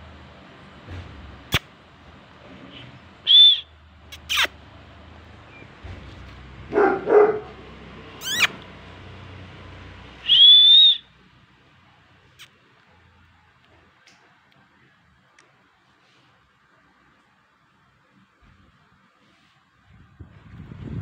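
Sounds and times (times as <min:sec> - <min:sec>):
puppy whining and yelping: 0:08.2 - 0:08.6.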